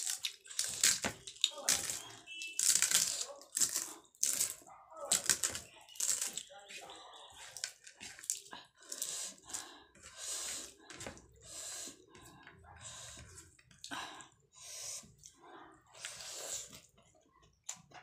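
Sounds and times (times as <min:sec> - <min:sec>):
hand squelching rice and curry: 0:00.0 - 0:13.8
close-up chewing: 0:00.0 - 0:14.3.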